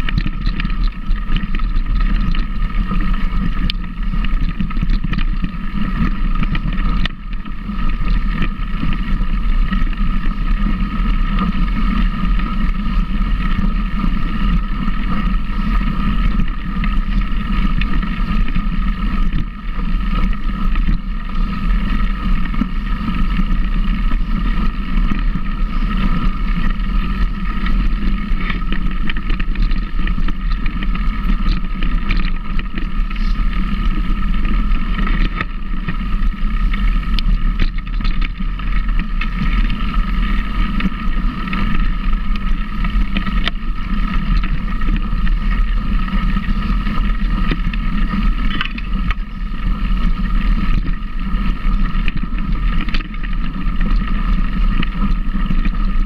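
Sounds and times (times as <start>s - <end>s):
vehicle engine running under load: 0.0s - 56.0s
wind rumble on microphone: 0.0s - 56.0s.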